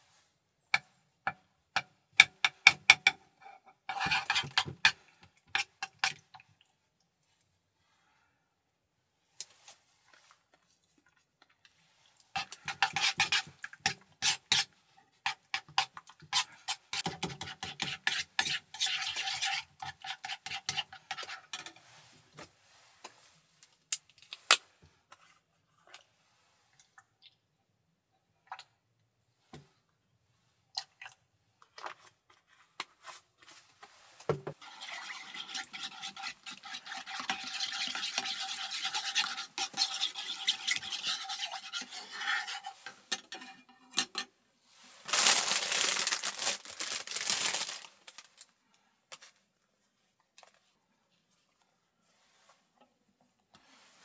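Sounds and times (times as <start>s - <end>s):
spoon scraping metal pot: 2.3s - 6.2s, 12.4s - 22.1s, 34.6s - 44.3s.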